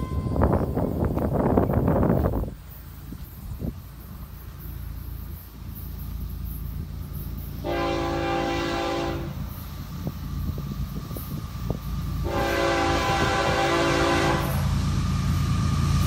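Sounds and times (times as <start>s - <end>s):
diesel locomotive rumble: 0.0s - 16.0s
locomotive horn chord: 7.6s - 9.4s, 12.2s - 14.7s.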